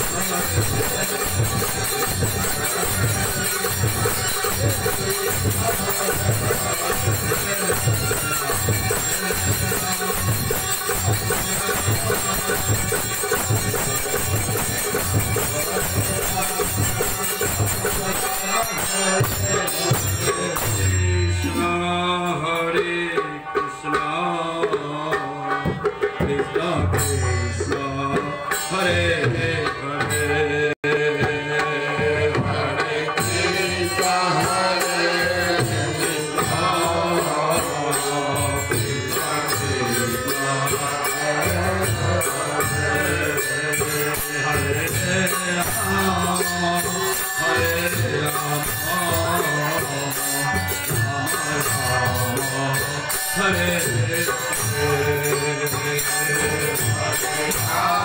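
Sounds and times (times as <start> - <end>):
dholak drum beating: 0.0 - 58.0
harmonium: 0.0 - 58.0
high percussion: 0.0 - 58.0
person singing: 0.0 - 58.0.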